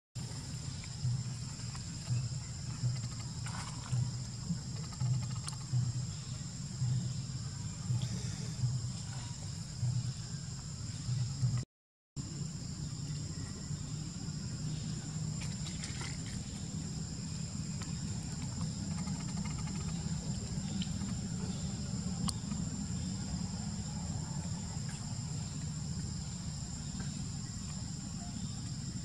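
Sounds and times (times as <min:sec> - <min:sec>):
high drone of insects: 0:00.2 - 0:11.6, 0:12.2 - 0:29.0
low outdoor rumble: 0:12.2 - 0:29.0.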